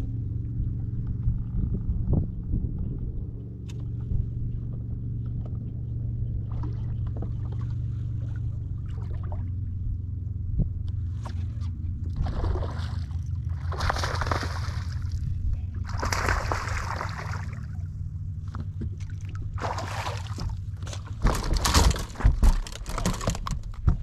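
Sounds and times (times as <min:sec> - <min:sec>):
low steady rumble: 0:00.0 - 0:24.0
fish splashing in water: 0:12.1 - 0:17.9, 0:18.9 - 0:23.4.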